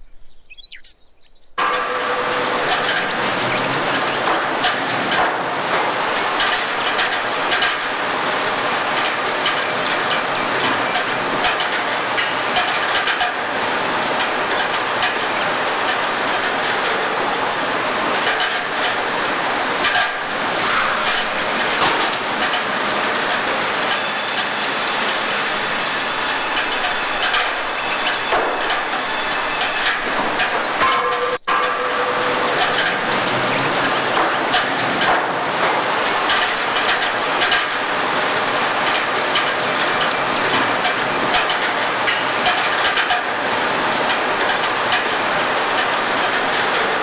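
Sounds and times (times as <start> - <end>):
boards clattering on conveyor: 1.6 - 47.0
steady machinery noise: 1.6 - 47.0.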